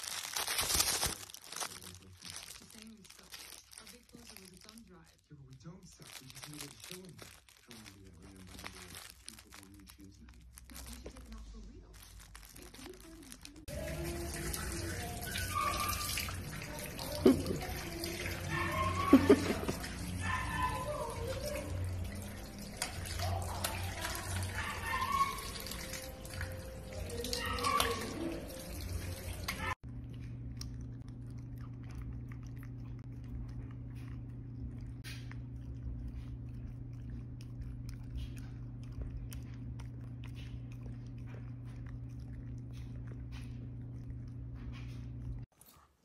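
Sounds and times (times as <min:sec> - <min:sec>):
tap water running and splashing: 0:13.6 - 0:29.8
faint voice: 0:16.5 - 0:22.4
dog eating clicks: 0:17.8 - 0:28.8.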